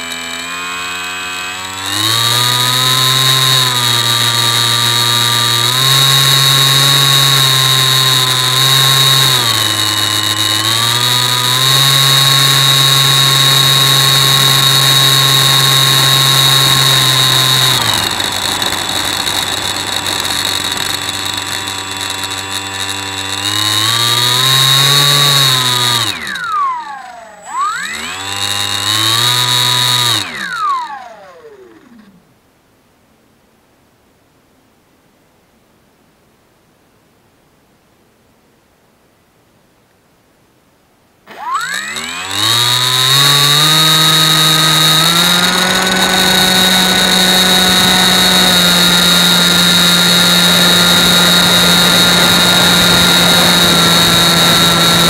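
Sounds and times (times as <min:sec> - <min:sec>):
model plane motor whining: 0:00.0 - 0:32.3, 0:41.3 - 0:55.0.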